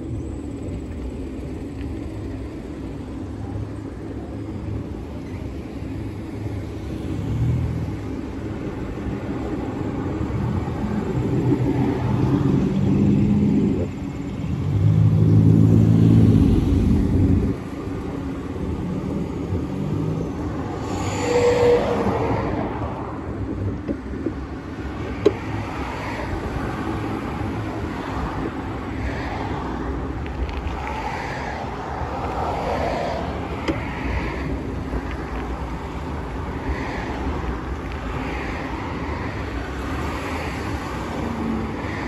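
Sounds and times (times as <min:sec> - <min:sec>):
car passing by: 0:19.8 - 0:23.2, 0:29.0 - 0:36.0.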